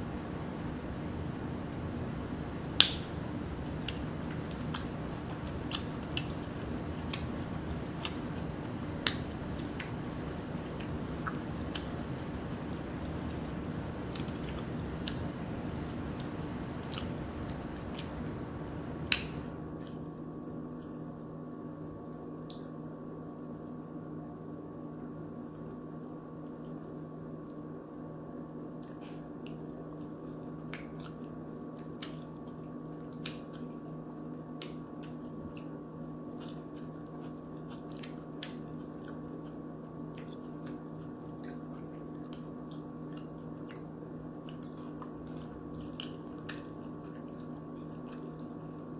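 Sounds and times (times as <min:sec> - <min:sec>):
person chewing soft food: 0:00.0 - 0:22.8, 0:28.7 - 0:48.9
steady hum: 0:00.0 - 0:48.9
wet mouth clicks: 0:36.4 - 0:48.6.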